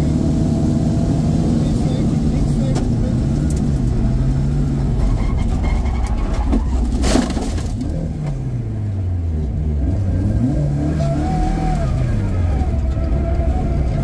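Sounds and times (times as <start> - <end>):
car engine revving: 7.0 - 14.0.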